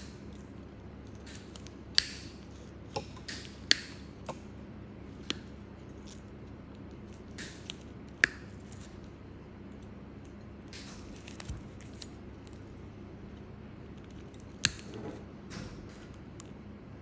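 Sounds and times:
nail nippers snipping toenail: 0:01.2 - 0:04.4.

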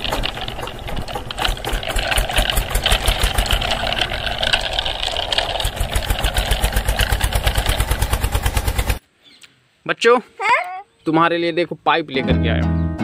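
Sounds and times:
toy tractor engine chugging: 0:00.0 - 0:09.0.

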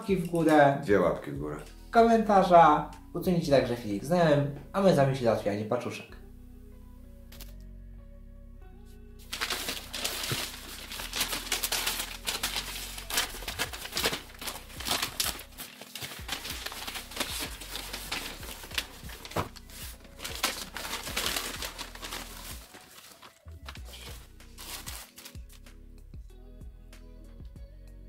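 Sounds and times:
plastic bags rustling: 0:09.3 - 0:25.4
paper envelope tearing and crinkling: 0:09.3 - 0:25.6.

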